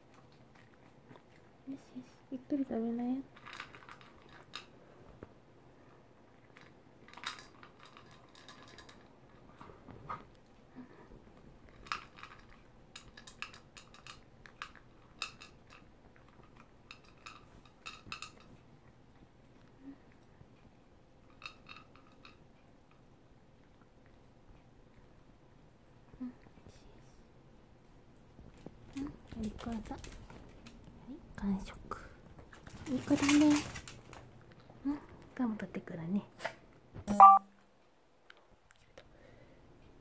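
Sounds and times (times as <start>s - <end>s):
dog crunching food: 0.0s - 1.6s, 3.3s - 4.7s, 11.7s - 19.7s.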